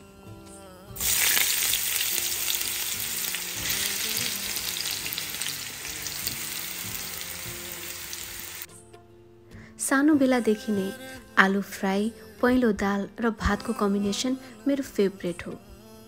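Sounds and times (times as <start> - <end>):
potato sticks sizzling in hot oil: 1.0 - 8.7.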